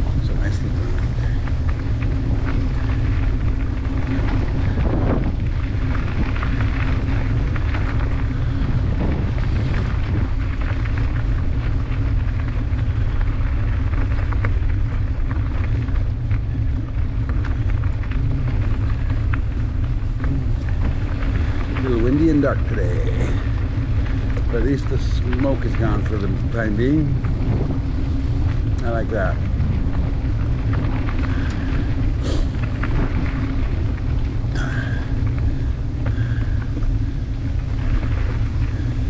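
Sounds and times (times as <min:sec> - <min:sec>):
tyres crunching on gravel: 0:00.0 - 0:39.0
wind rumble on microphone: 0:00.0 - 0:39.0.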